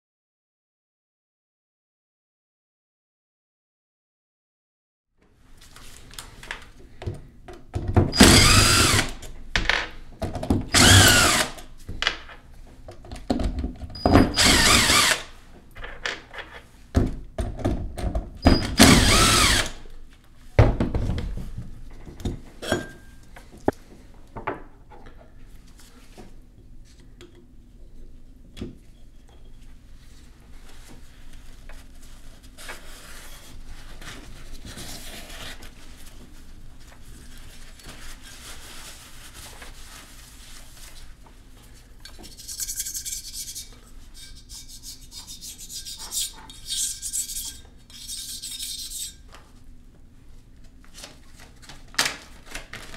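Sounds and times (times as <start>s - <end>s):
cordless power driver spinning screws: 8.2s - 9.1s, 10.8s - 11.6s, 14.4s - 15.2s, 18.8s - 19.8s
paper towel wiping: 30.8s - 41.2s.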